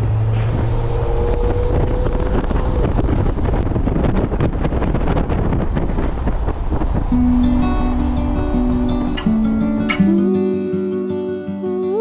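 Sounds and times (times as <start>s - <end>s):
road and tyre noise: 0.0s - 10.1s
wind buffeting microphone: 0.0s - 10.4s
steady whine: 7.0s - 11.2s.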